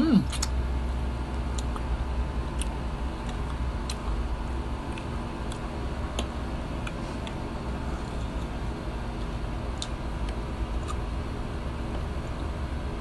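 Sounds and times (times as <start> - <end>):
mouth chewing food: 0.0 - 0.6, 1.3 - 1.9, 2.5 - 4.2, 4.8 - 7.4, 9.2 - 11.1
steady low hum: 0.0 - 13.0.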